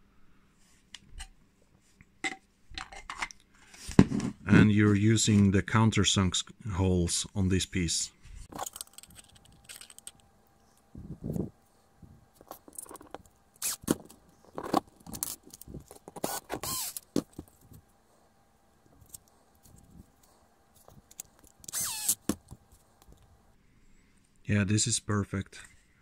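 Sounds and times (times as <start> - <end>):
screws and plastic parts clicking: 8.5 - 10.9, 12.4 - 17.8, 19.0 - 23.3
cordless drill driving screw: 13.6 - 14.0, 16.2 - 17.1, 21.6 - 22.3.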